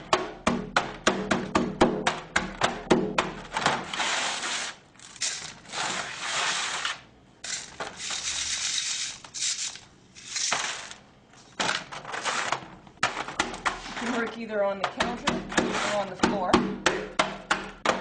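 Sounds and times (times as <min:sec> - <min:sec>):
soil rasping through wire sieve: 0:03.8 - 0:11.0, 0:15.6 - 0:16.2.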